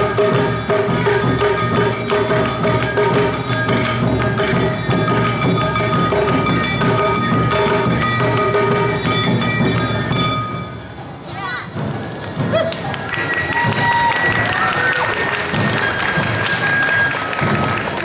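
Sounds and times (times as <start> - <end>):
hand gongs beating: 0.0 - 11.1
drums beating: 0.0 - 18.0
bamboo flutes: 11.9 - 18.0.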